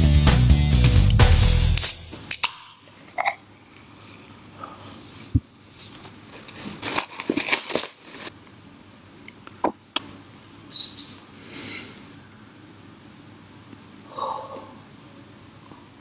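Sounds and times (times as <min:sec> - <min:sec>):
paper wrapper crinkling: 0:05.8 - 0:08.4.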